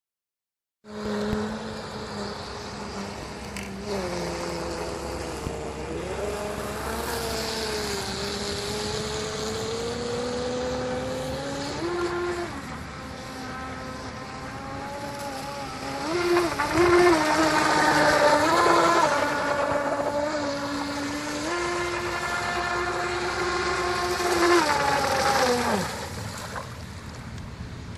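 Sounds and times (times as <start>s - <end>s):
electric motor whining: 0.9s - 26.6s.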